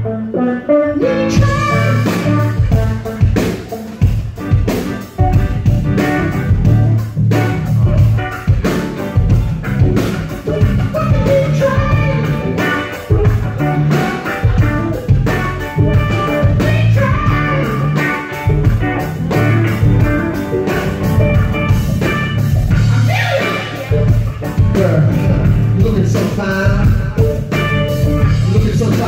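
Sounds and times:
electric guitar: 0:00.0 - 0:29.0
person singing: 0:00.2 - 0:03.8, 0:10.4 - 0:13.4, 0:16.0 - 0:18.6, 0:22.9 - 0:27.5, 0:28.2 - 0:29.0
drum kit beat: 0:01.0 - 0:29.0.

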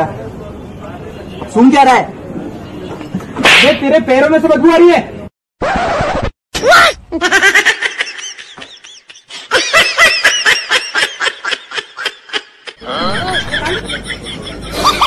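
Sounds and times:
person laughing: 0:07.1 - 0:15.0.

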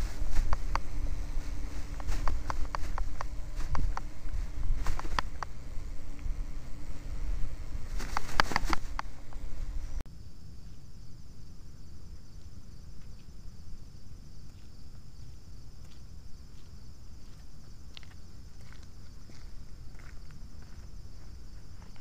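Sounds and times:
microphone handling noise: 0:00.0 - 0:10.0
wind rumble on microphone: 0:00.0 - 0:10.0
steady hiss: 0:00.0 - 0:14.8.

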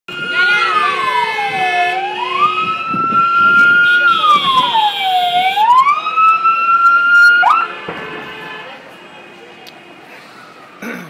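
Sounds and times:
emergency vehicle siren wailing: 0:00.1 - 0:08.5.

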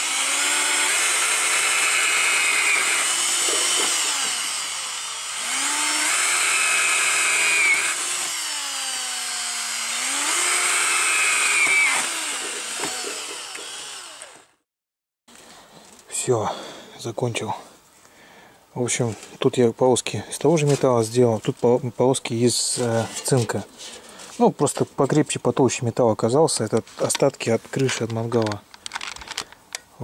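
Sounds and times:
cordless drill boring through tin: 0:00.0 - 0:14.4.

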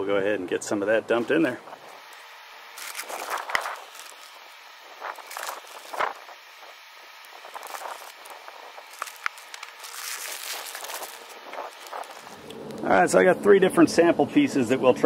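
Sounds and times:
plastic bag crinkling: 0:01.7 - 0:12.9.

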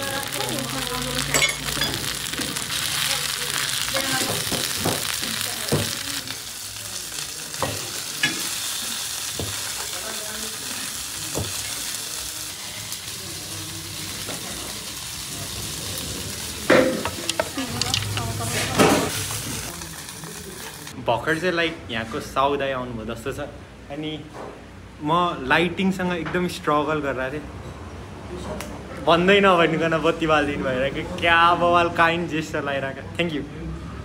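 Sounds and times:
food sizzling in a pan: 0:00.0 - 0:21.1.

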